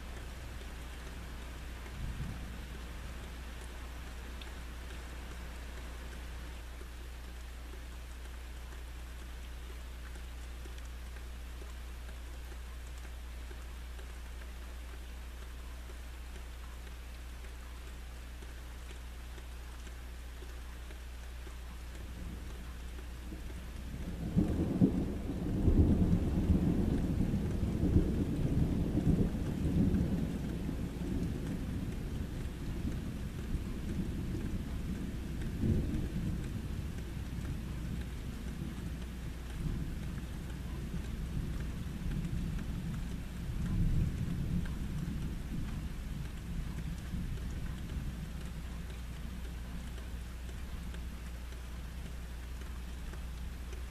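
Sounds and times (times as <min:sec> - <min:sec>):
steady rain: 0:00.0 - 0:53.9
thunder rolling: 0:24.1 - 0:34.2.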